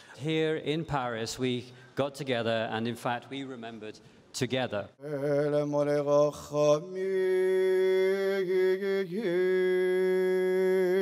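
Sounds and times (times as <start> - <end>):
man chanting a prayer: 4.5 - 11.0.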